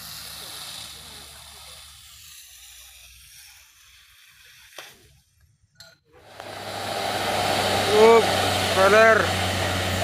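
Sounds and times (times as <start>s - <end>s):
vehicle engine hum: 6.2s - 10.0s.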